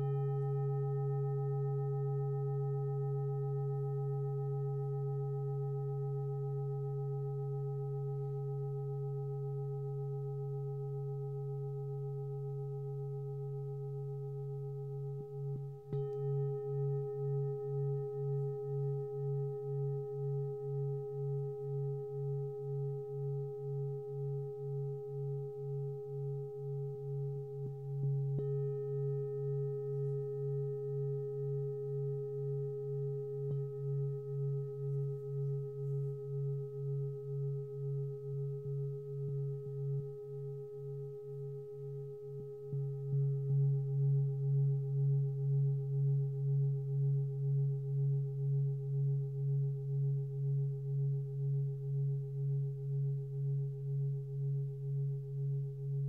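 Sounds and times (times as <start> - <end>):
singing bowl strike: 0.0 - 4.2, 15.9 - 20.3
singing bowl ringing: 0.0 - 50.1.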